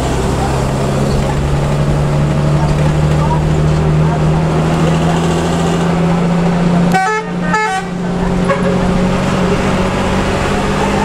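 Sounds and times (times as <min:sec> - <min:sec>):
bus engine drone: 0:00.0 - 0:11.0
bus horn blasts: 0:06.9 - 0:09.0.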